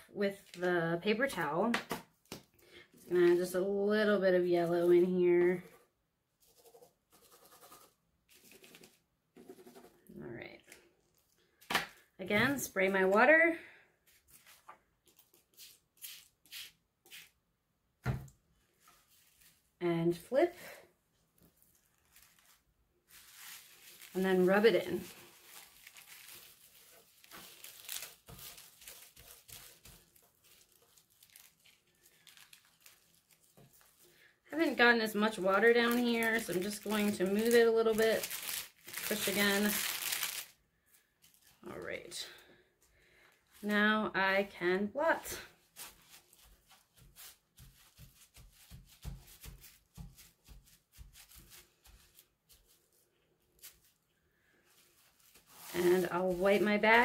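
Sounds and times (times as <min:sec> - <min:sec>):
paper towel patting wet paper: 0:14.1 - 0:17.4, 0:21.4 - 0:40.5, 0:45.2 - 0:54.0, 0:54.7 - 0:57.0
plastic bag crinkling: 0:21.5 - 0:34.2, 0:35.5 - 0:40.6, 0:54.7 - 0:57.0.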